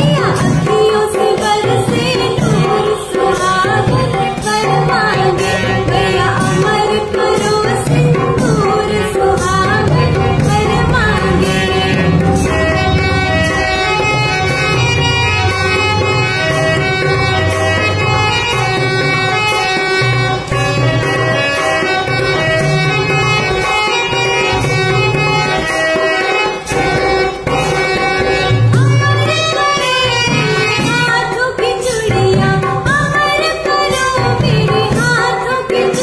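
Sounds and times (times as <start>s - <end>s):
instrumental melody: 0.0s - 36.0s
rhythmic drums: 0.0s - 36.0s
woman singing folk song: 30.9s - 36.0s.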